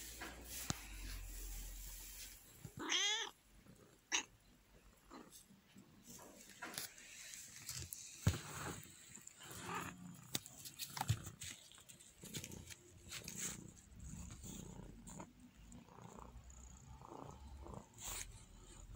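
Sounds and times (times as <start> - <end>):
dry hay rustling: 0.0 - 2.6.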